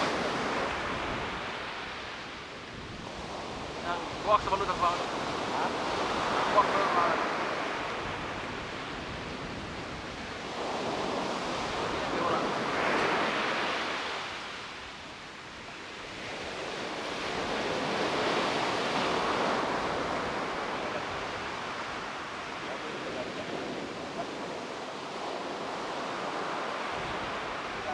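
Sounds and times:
ocean surf breaking over rocks: 0.0s - 27.9s.

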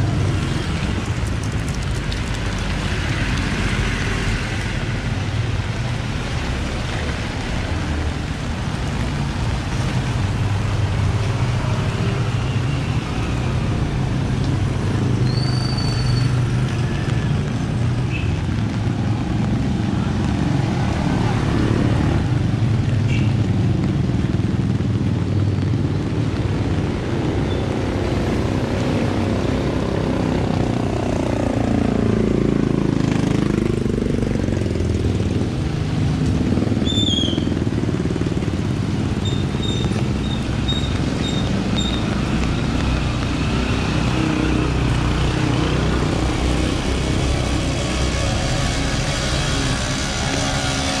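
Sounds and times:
street traffic noise: 0.0s - 51.0s.

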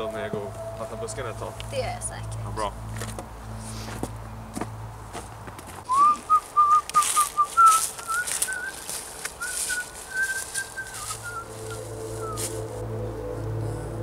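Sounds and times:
footsteps through undergrowth: 2.8s - 13.8s
person whistling a tune: 5.9s - 12.7s.

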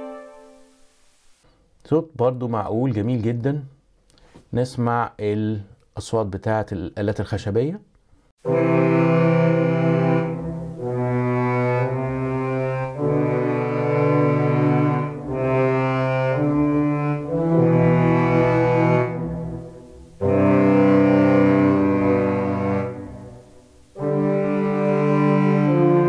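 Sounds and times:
low woodwinds playing held chords: 0.0s - 0.8s, 8.4s - 26.0s.

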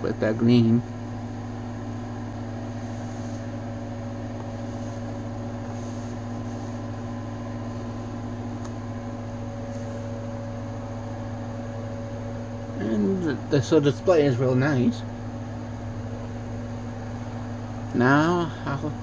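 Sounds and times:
appliance motor humming: 0.0s - 19.0s.

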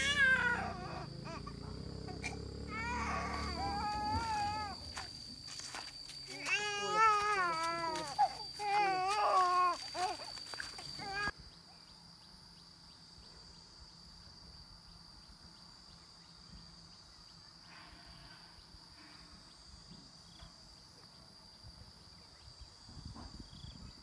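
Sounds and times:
high-pitched insect drone: 0.0s - 11.9s.

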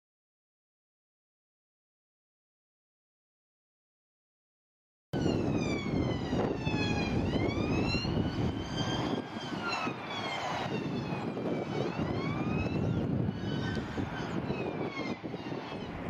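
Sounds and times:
police siren wailing: 5.2s - 16.0s
road traffic rumble: 5.2s - 16.0s.

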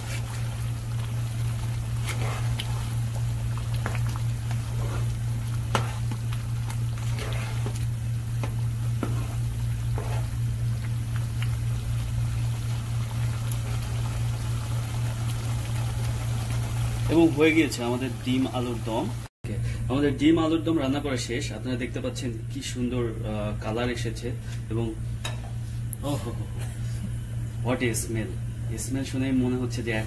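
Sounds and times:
spatula stirring thick curry: 0.0s - 11.0s
steady low hum: 0.0s - 30.0s.

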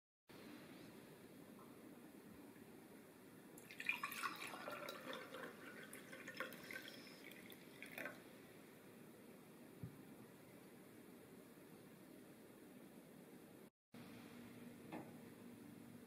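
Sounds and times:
liquid pouring into glass: 3.6s - 8.2s.

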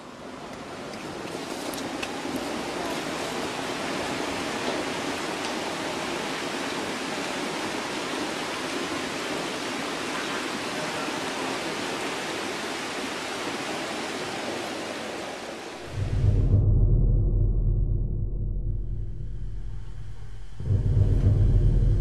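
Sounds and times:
steady rushing hiss: 0.0s - 16.0s
deep low rumble: 15.8s - 22.0s.

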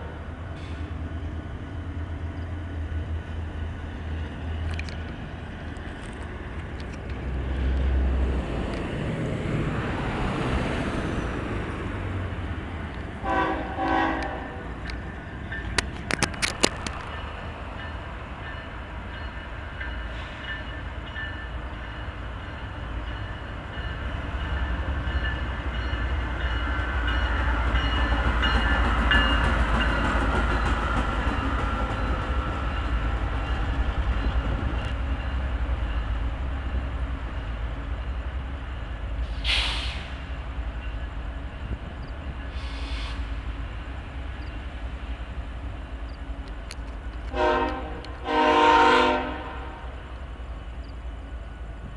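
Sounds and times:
diesel locomotive rumbling: 0.0s - 51.9s
short bursts of hiss: 39.3s - 40.2s, 42.5s - 43.4s.

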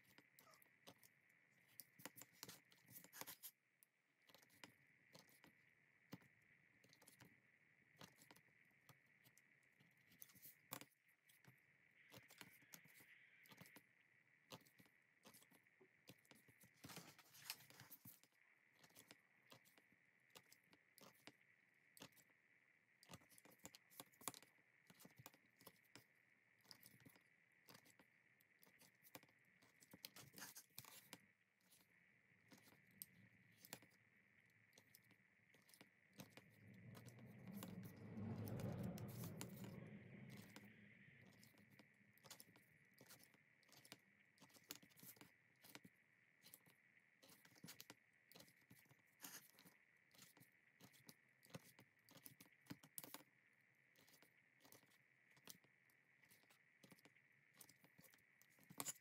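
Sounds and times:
faint high hum: 0.0s - 47.7s
low rumble: 36.4s - 41.4s.

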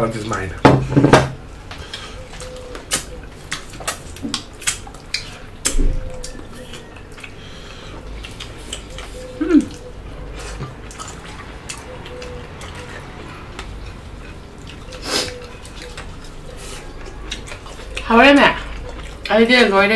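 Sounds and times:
chewing and mouth clicks: 1.6s - 19.9s
person humming murmurs: 9.3s - 9.8s.

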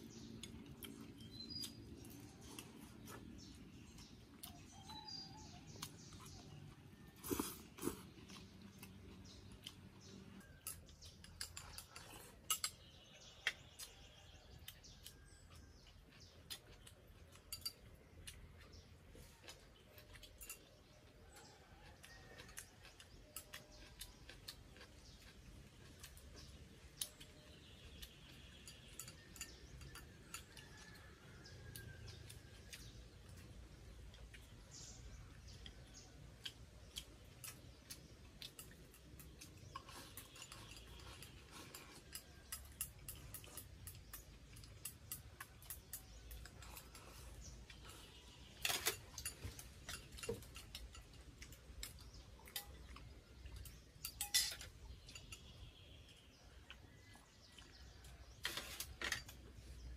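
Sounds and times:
faint birds chirping: 0.0s - 59.9s
chopsticks clicking on bowls: 8.4s - 18.8s, 19.4s - 59.9s.

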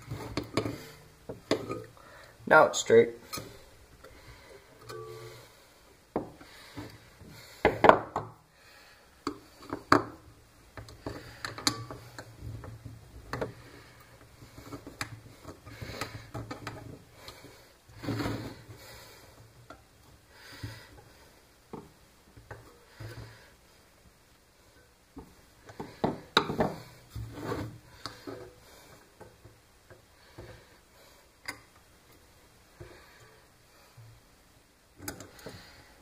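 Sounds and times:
scrape: 18.0s - 18.6s, 27.1s - 28.4s.

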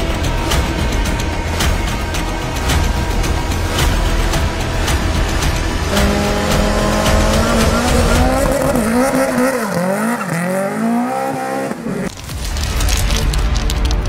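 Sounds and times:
rally car engine revving and accelerating: 1.3s - 12.2s.

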